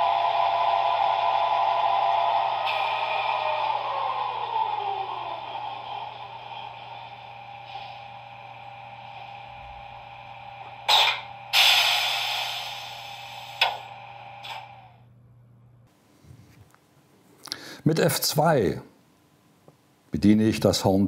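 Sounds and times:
model locomotive motor whine: 0.0s - 15.0s
low hum: 0.0s - 16.6s.

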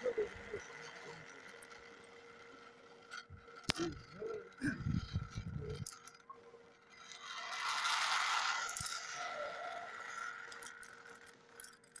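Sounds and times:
metallic clinks of rigging: 0.4s - 12.0s
rope scraping through pulley: 6.9s - 11.4s.

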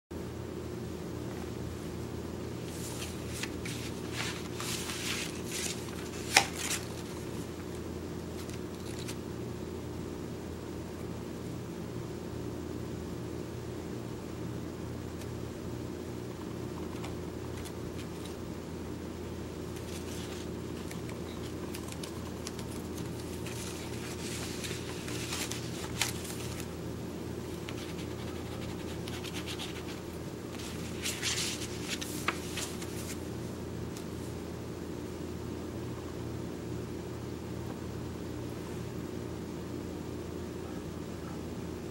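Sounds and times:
steady low hum: 0.1s - 41.9s
paper rustling and scraping: 2.6s - 7.7s, 8.3s - 9.2s, 19.7s - 26.8s, 27.4s - 33.3s.

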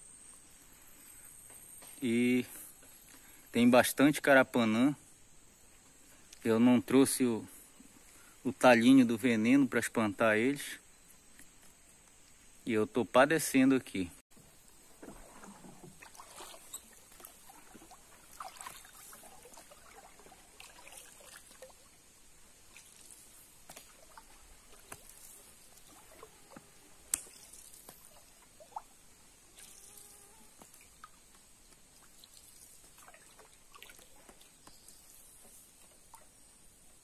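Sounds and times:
high-pitched insect hum: 0.0s - 37.0s
water dripping and trickling: 15.0s - 30.0s, 30.6s - 36.8s.

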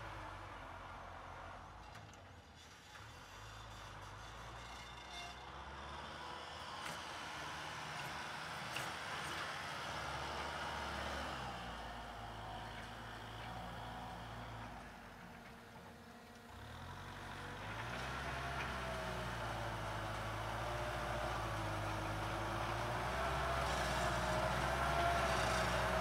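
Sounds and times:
tractor diesel engine running: 6.2s - 26.0s.

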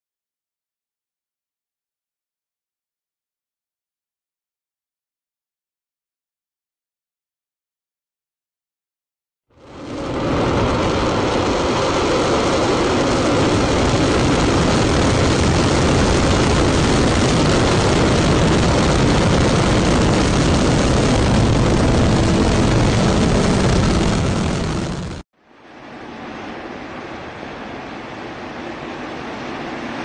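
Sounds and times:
rocket engine roar: 9.5s - 30.0s.

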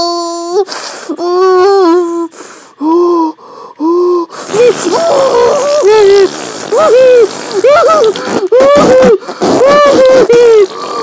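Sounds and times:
person moaning: 0.0s - 11.0s
person gasping: 0.5s - 6.3s, 9.1s - 9.6s, 10.5s - 11.0s.

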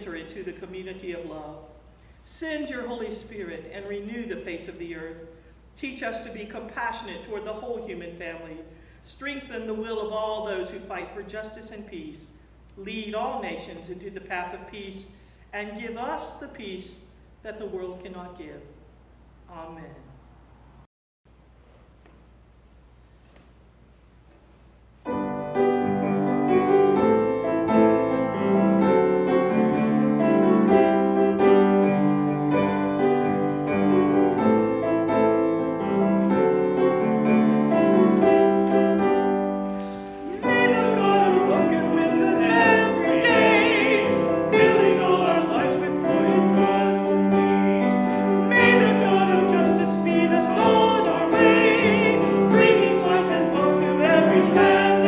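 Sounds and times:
piano playing a hymn: 25.0s - 55.0s
person singing with vibrato: 39.9s - 55.0s.

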